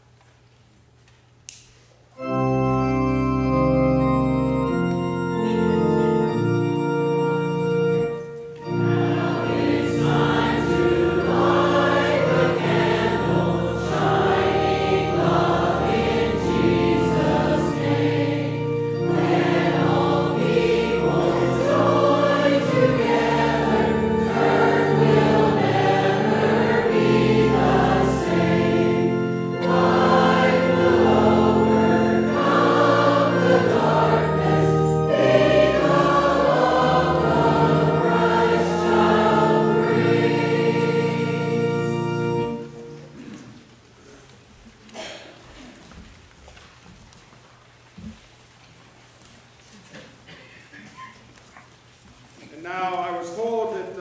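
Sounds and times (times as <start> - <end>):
organ accompaniment: 2.1 - 43.9
church choir singing: 2.2 - 43.6.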